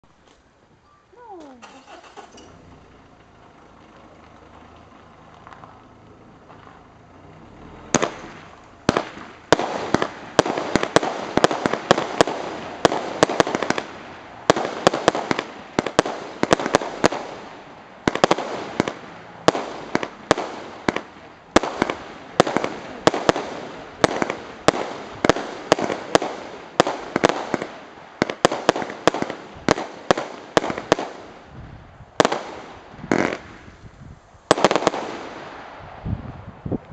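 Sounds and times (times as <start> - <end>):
firework bangs: 7.4 - 36.6.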